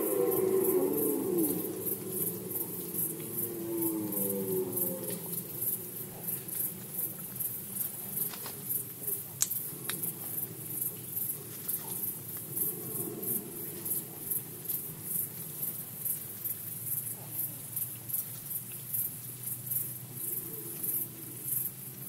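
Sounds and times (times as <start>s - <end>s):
faint deer calling: 0.0s - 5.9s
low rumble: 0.0s - 7.1s
insect chirping: 0.0s - 22.0s.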